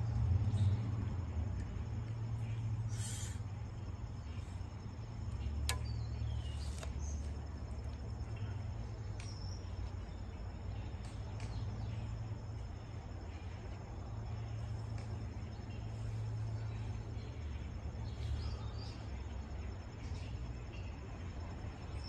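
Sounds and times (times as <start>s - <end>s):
steady low rumble: 0.0s - 21.9s
faint high insect hum: 0.0s - 22.0s
bow sharp click: 5.6s - 7.0s
faint soft clicks: 11.0s - 11.7s.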